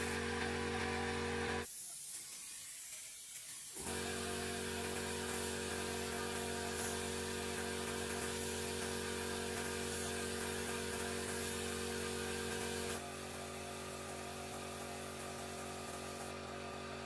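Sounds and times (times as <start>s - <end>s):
air compressor motor hum: 0.0s - 1.8s, 3.7s - 17.0s
paint spray gun hissing: 1.6s - 16.3s.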